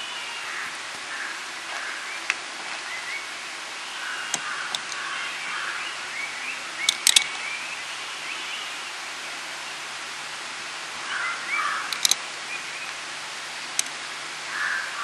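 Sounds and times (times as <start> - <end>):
steady hiss: 0.0 - 15.0
bird chirps: 3.9 - 8.8
sharp clicks: 6.8 - 7.4, 11.9 - 12.2.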